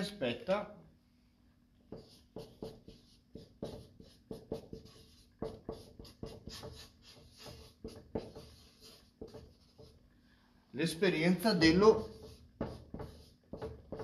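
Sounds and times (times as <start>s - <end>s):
marker writing on paper: 1.9s - 10.0s, 11.7s - 14.0s.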